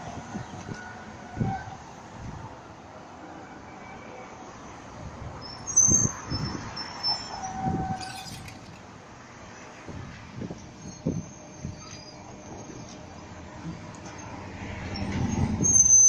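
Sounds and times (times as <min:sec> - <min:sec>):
tram passing: 0:00.0 - 0:16.0
high-pitched wheel squeal: 0:05.4 - 0:08.8, 0:10.6 - 0:14.2, 0:14.8 - 0:16.0.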